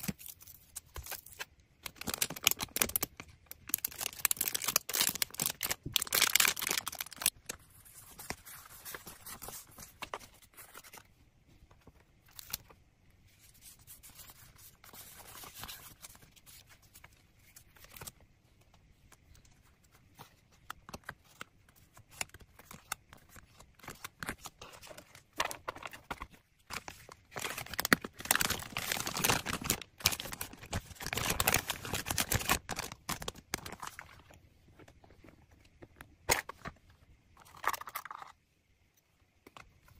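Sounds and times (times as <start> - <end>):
plastic bags crinkling: 1.8 - 7.4, 24.8 - 34.2.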